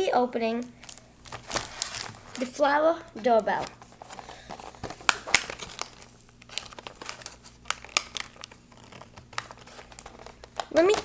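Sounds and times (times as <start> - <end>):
plastic packaging crackling: 0.0 - 11.0.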